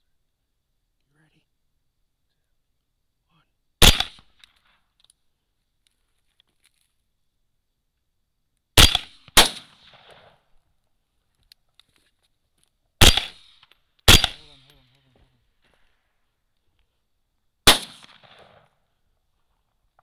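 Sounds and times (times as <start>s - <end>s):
rifle shots with echo: 3.8s - 4.5s, 8.8s - 10.5s, 13.0s - 14.7s, 17.6s - 18.8s.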